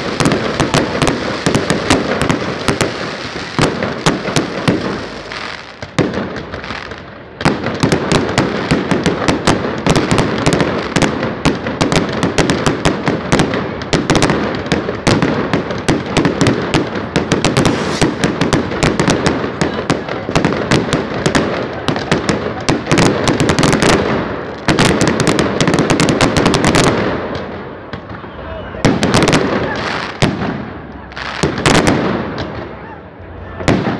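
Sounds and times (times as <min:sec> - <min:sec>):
fireworks bangs and crackles: 0:00.0 - 0:33.9.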